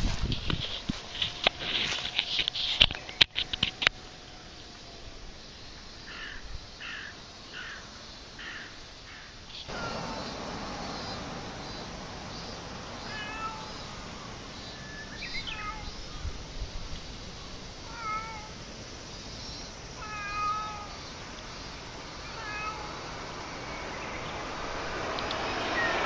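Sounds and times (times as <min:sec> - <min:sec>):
cat meowing: 0:13.0 - 0:13.8, 0:15.3 - 0:16.0, 0:17.8 - 0:18.6, 0:20.0 - 0:21.0, 0:22.2 - 0:23.2.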